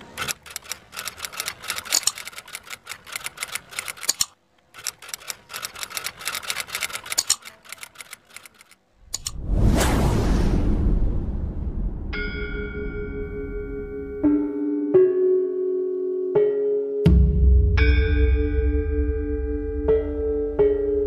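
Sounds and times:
typewriter key clacks: 0:00.2 - 0:08.7
loud rushing rumble: 0:09.2 - 0:12.7.

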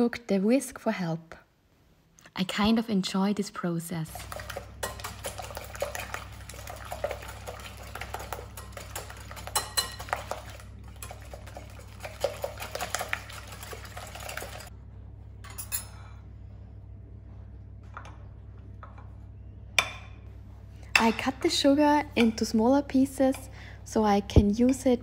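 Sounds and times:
whisk clinking against glass bowl: 0:04.2 - 0:14.7.

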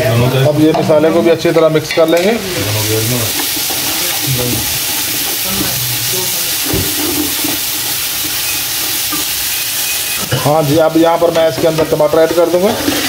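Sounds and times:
paste sizzling in hot oil: 0:00.0 - 0:13.0
spatula stirring pot: 0:00.7 - 0:09.4, 0:11.2 - 0:13.0.

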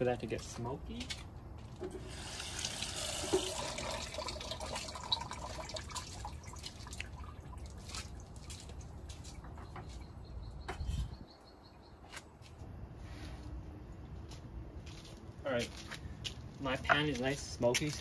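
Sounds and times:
oil hissing and crackling: 0:01.9 - 0:08.4.

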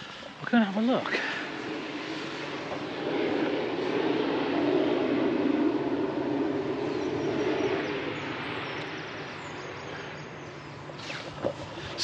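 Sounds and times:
vehicle passing by: 0:01.0 - 0:10.3.

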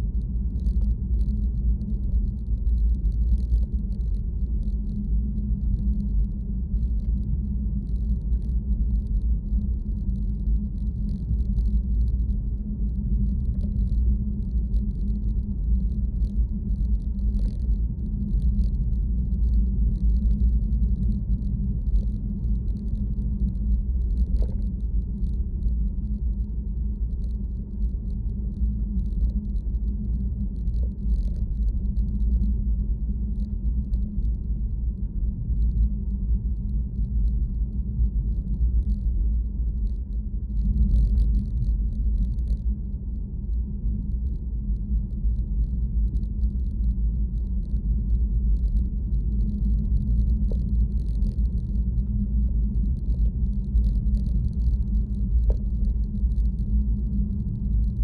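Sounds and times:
faint light ticks: 0:00.1 - 0:58.0.

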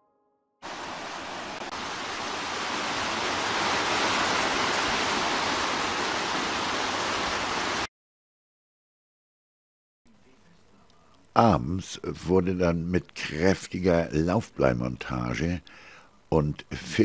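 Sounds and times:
stream rushing over boulders: 0:00.6 - 0:07.9.

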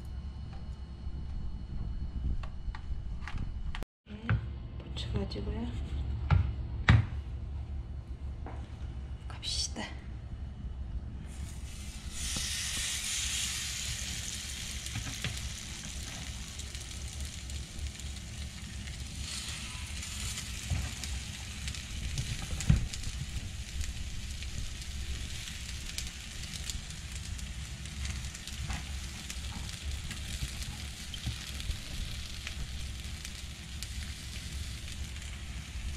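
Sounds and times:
sizzling in hot oil: 0:11.3 - 0:35.9.

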